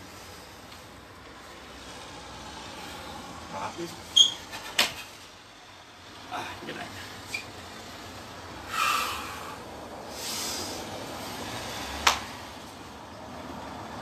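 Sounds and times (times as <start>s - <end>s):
forceful breathing: 8.6s - 11.9s.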